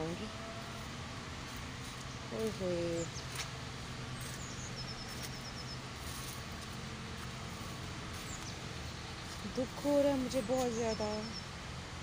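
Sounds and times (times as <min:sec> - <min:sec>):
outdoor hum and hiss: 0:00.0 - 0:12.0
small bird chirping: 0:01.9 - 0:11.5.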